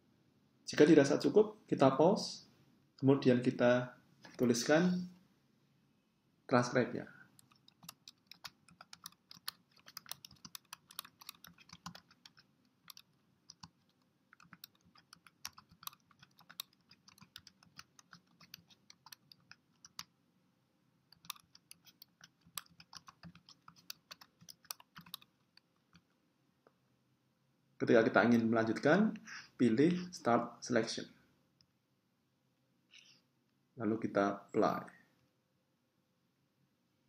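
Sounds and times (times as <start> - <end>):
computer keyboard typing: 7.4 - 20.1, 21.1 - 26.0.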